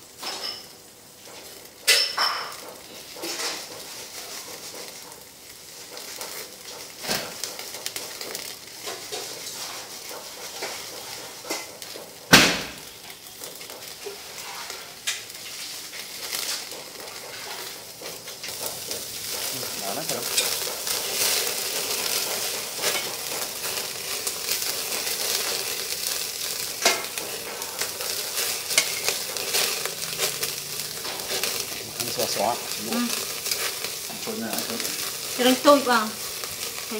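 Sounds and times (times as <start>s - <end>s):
meat sizzling on a grill: 0.0s - 36.9s
sharp pops and crackles: 2.6s - 14.2s.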